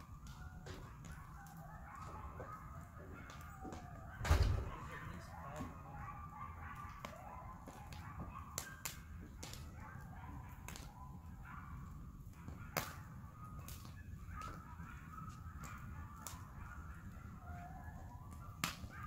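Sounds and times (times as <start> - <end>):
campfire wood crackling: 0.0 - 19.0
low steady fire rumble: 0.0 - 19.0.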